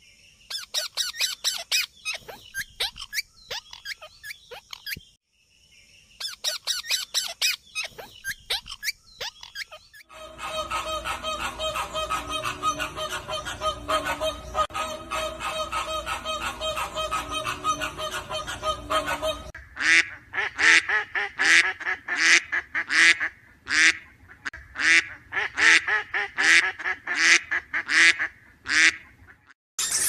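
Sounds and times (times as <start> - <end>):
parakeets screeching: 0.5 - 5.0, 6.2 - 19.6
flamingos honking: 10.0 - 20.0.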